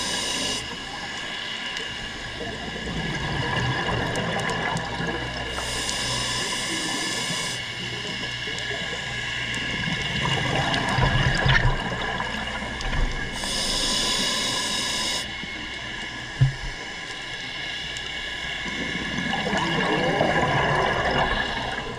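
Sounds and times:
scuba regulator inhale hissing: 0.0s - 0.8s, 5.6s - 7.8s, 13.3s - 15.3s
exhaled bubbles gurgling: 2.1s - 15.3s, 18.6s - 21.9s.

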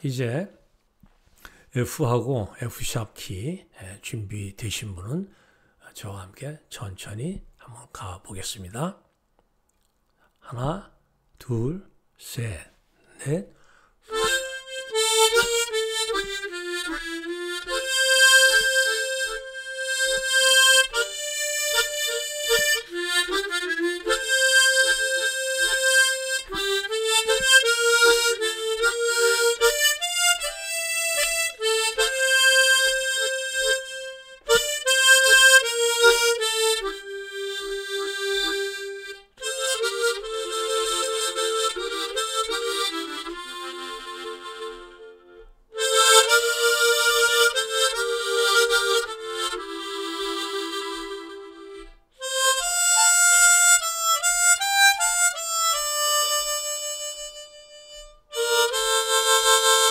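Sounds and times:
harmonica slow melody: 13.0s - 59.9s.

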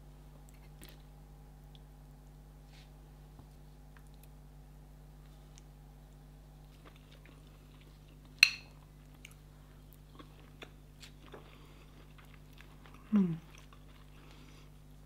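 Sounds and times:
faint electrical hum: 0.0s - 15.0s
person chewing: 6.7s - 14.8s
fork clinking on ceramic bowl: 8.4s - 8.7s
person humming mm: 13.0s - 13.5s.

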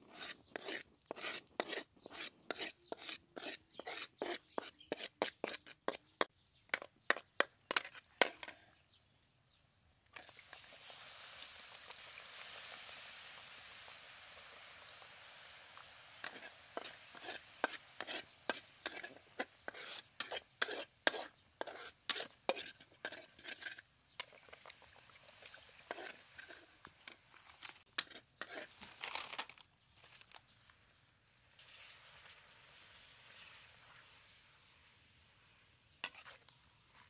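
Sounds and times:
metal spatula scraping a wok: 0.0s - 8.6s, 15.5s - 28.8s, 36.0s - 36.5s
sauce sizzling in a pan: 10.2s - 23.3s, 24.3s - 27.5s, 31.5s - 35.7s.

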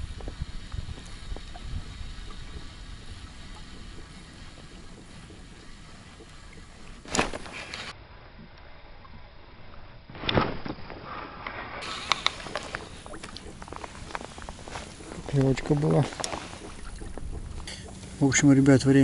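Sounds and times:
wind on microphone: 0.0s - 7.8s, 11.8s - 18.2s
waves lapping at boat hull: 11.8s - 18.3s.

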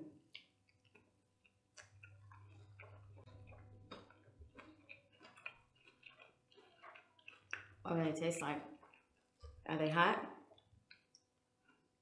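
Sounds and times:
chewing crunchy food: 0.2s - 9.7s, 10.4s - 12.0s.

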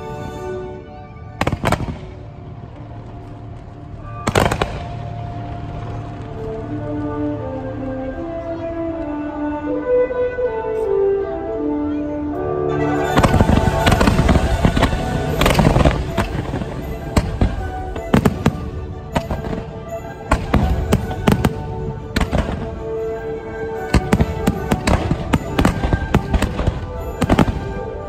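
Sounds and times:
music playing: 0.0s - 28.0s
fireworks bangs: 1.4s - 2.4s, 4.0s - 6.5s, 12.9s - 23.1s, 23.8s - 28.0s.

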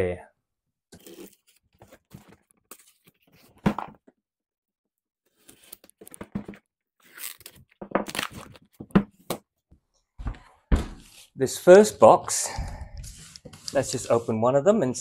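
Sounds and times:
cardboard boxes pulled apart: 7.0s - 8.6s
knife slicing packing tape: 7.1s - 8.5s.

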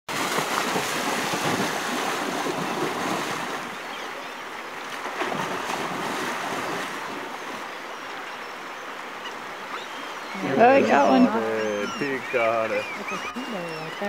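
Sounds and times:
bear splashing through river: 0.1s - 4.1s, 4.8s - 7.8s
river rushing: 0.1s - 14.0s.

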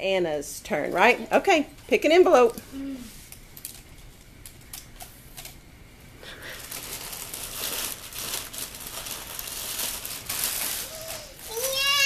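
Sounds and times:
plastic mailer crinkling: 6.4s - 12.0s.

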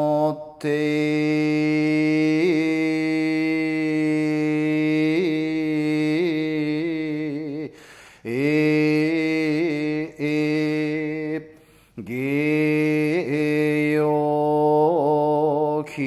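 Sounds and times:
monk chanting: 0.0s - 16.0s.

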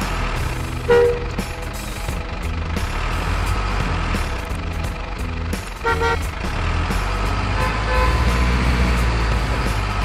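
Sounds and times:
heavy truck engine rumbling: 0.0s - 10.0s
truck horn toot: 0.8s - 1.5s, 5.8s - 6.4s, 7.4s - 8.9s.

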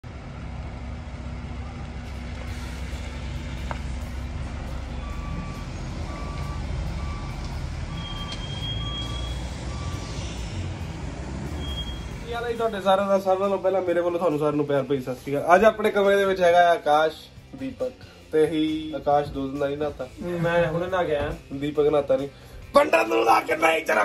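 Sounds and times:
vehicle engines rumbling: 0.0s - 22.8s
reversing alarm beeping: 4.7s - 10.7s, 11.5s - 12.3s.

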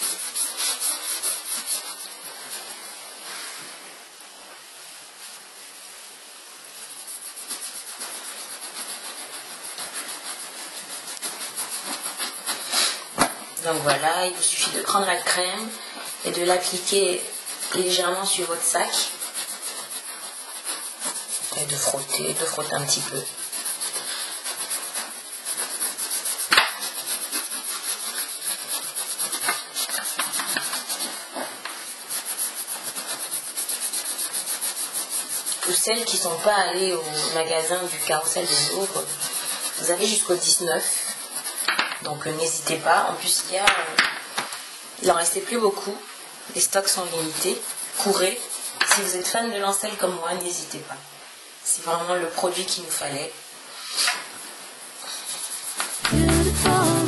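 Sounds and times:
cloth scrubbing leather: 0.0s - 3.5s, 6.6s - 41.7s.

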